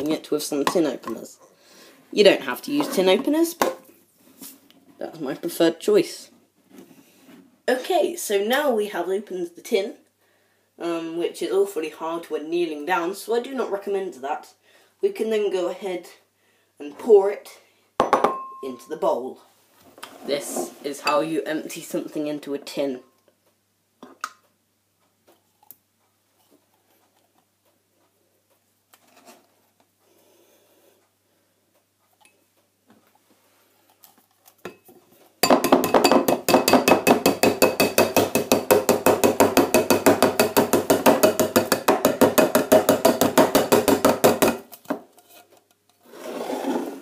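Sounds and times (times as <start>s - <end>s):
metal tin knocking on ceramic bowl: 35.4s - 44.6s.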